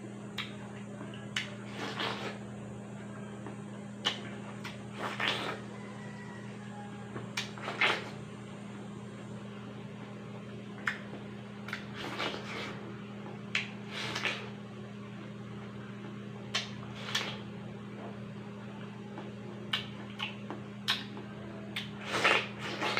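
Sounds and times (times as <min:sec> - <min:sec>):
wet bites into watermelon: 0:07.3 - 0:08.2, 0:21.8 - 0:22.9.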